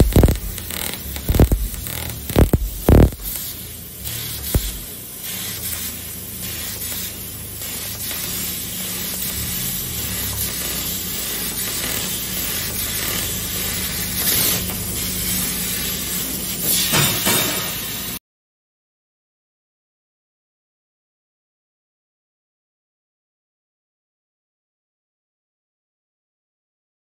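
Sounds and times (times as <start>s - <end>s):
low mechanical hum: 0.0s - 16.8s
hiss of gas jetting: 0.1s - 18.2s.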